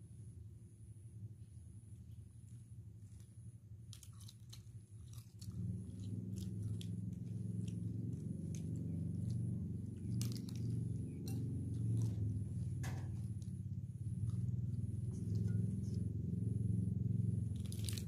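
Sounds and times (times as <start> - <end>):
chewing and biting: 2.4 - 18.0
prawn shells cracking: 3.8 - 16.0, 17.3 - 18.0.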